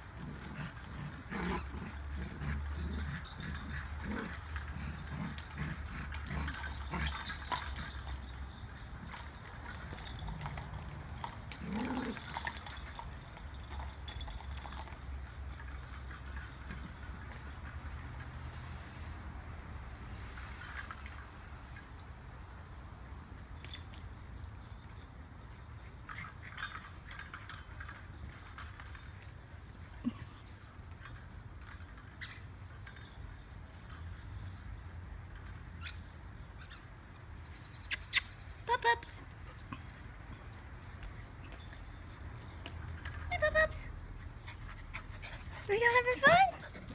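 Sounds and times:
plastic toys clicking and clattering: 0.0s - 18.3s, 26.0s - 34.5s.

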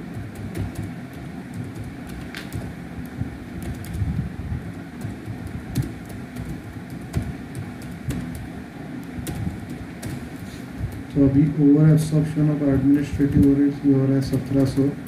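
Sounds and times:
low background rumble: 0.0s - 15.0s
keyboard typing clicks: 0.1s - 4.2s, 5.0s - 11.1s.

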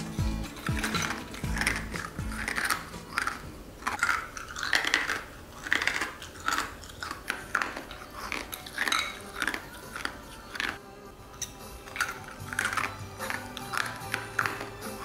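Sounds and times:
chewing ice cubes crunching: 0.0s - 15.0s.

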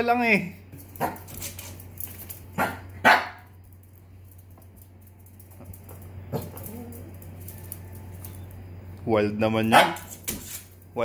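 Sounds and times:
small dog barking: 2.6s - 3.5s, 9.7s - 10.1s.

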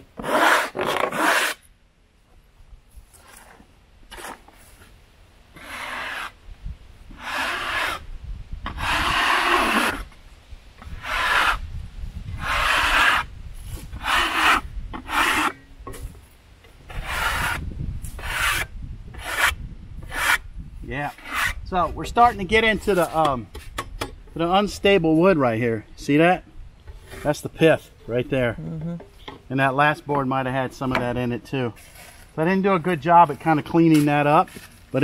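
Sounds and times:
metal scraper rasping on wood: 0.2s - 1.6s, 7.2s - 8.0s, 8.7s - 10.0s, 10.8s - 11.6s, 12.4s - 13.3s, 14.0s - 15.6s, 16.9s - 20.4s, 21.1s - 21.6s.

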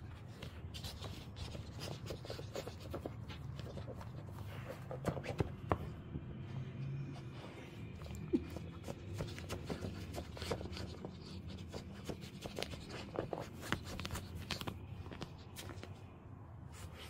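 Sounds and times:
low steady hum: 0.0s - 17.0s
dogs scrabbling against clothing: 8.2s - 16.0s.

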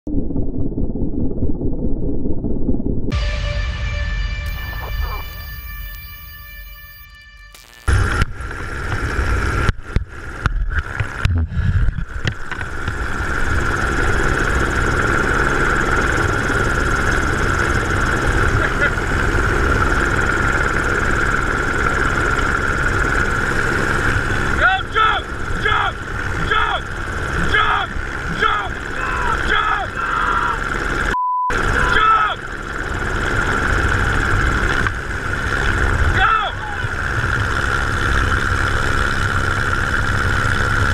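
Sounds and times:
helicopter turbine whine: 2.4s - 40.9s
censor bleep: 3.1s - 8.0s, 31.2s - 31.6s
person shouting: 24.6s - 30.7s, 31.7s - 32.4s, 36.1s - 36.9s.

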